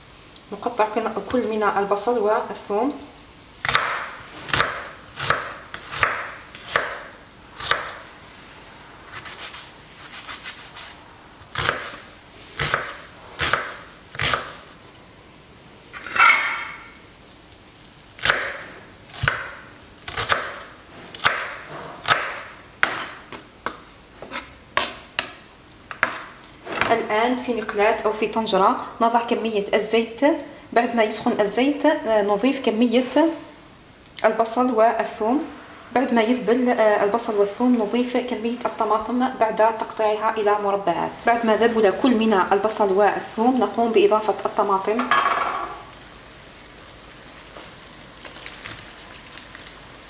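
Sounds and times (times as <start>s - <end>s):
knife chopping on wooden board: 3.7s - 7.0s, 21.2s - 25.3s.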